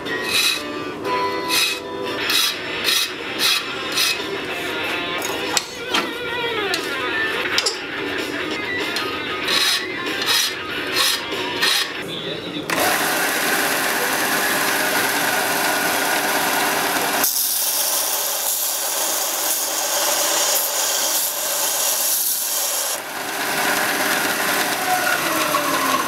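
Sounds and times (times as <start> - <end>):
sander machine hum: 12.7 - 26.0
metal grinding hiss on sander: 17.2 - 23.0.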